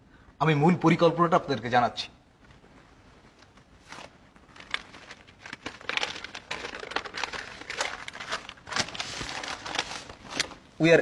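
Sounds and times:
paper rustling and crinkling: 2.4 - 10.8.

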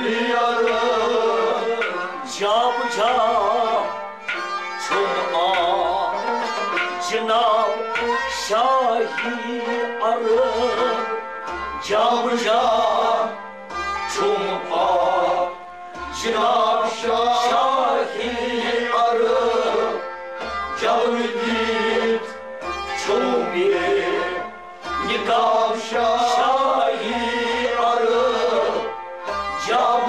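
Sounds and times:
man singing: 0.0 - 4.0, 4.8 - 11.2, 11.8 - 13.4, 14.1 - 20.0, 20.8 - 28.9, 29.6 - 30.0
bowed and plucked strings: 0.0 - 30.0
harmonium: 0.0 - 30.0
goblet drum beat: 4.3 - 8.1.

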